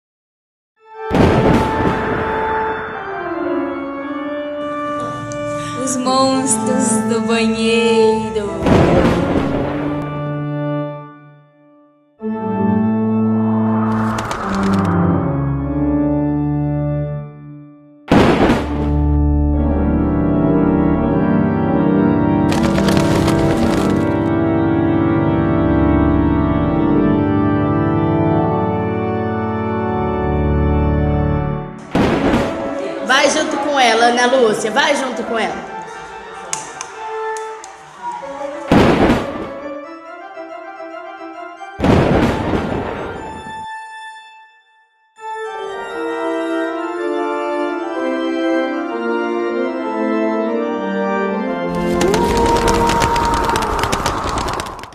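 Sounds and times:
organ chords: 0:00.9 - 0:33.1, 0:45.2 - 0:52.0.

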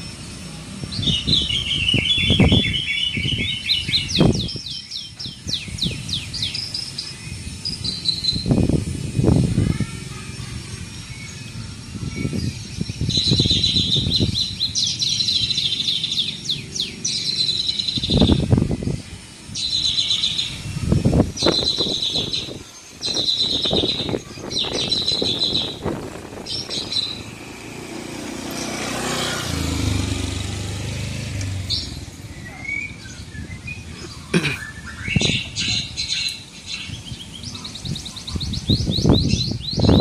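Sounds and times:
parrots chirping: 0:01.0 - 0:18.5, 0:19.5 - 0:30.1.

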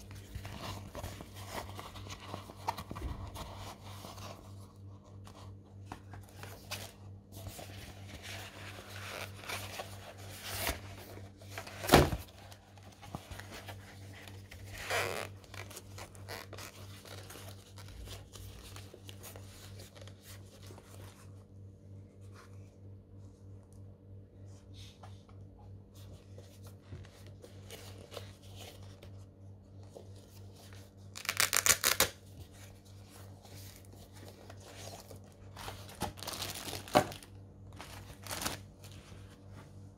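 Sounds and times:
fabric case rustling and scraping: 0:00.0 - 0:21.4.

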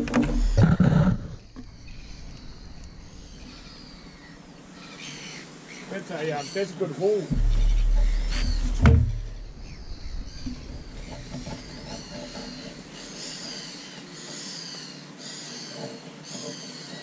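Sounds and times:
birds chirping: 0:00.0 - 0:17.0
brief knock: 0:07.3 - 0:11.8.

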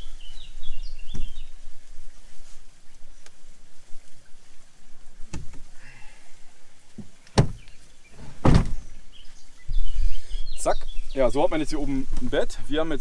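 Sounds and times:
loud clunk: 0:08.2 - 0:08.9.

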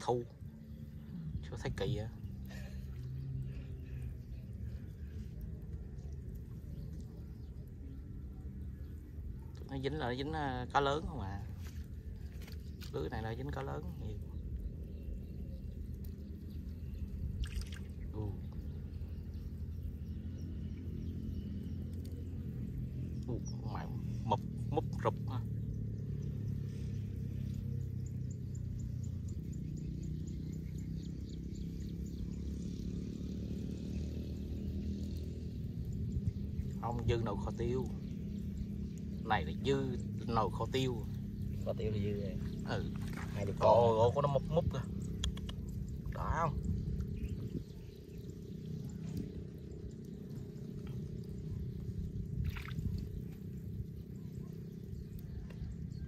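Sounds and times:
low motor drone: 0:00.0 - 0:56.0
steady low rumble: 0:00.0 - 0:56.0
water dripping off a net: 0:09.5 - 0:14.7, 0:17.0 - 0:18.8, 0:21.5 - 0:22.6.

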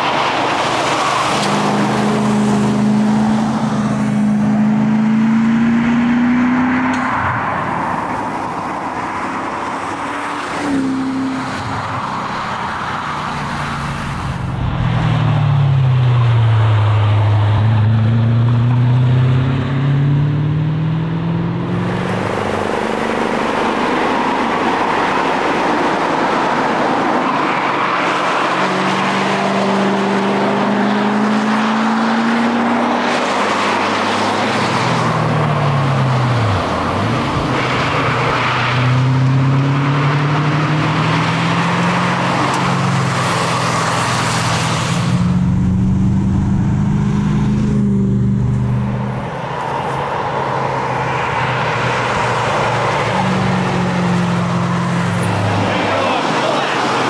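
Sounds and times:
car engine revving hard: 0:00.0 - 0:07.0, 0:17.4 - 0:57.0
steady rush of noise: 0:13.2 - 0:15.9.

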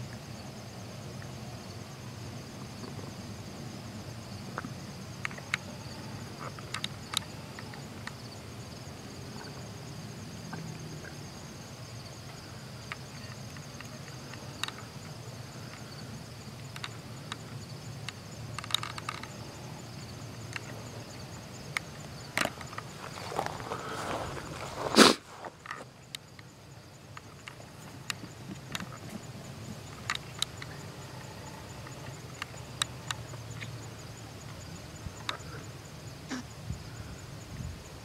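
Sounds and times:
insects trilling: 0:00.0 - 0:38.0
sharp clicks and snaps: 0:16.6 - 0:17.4.

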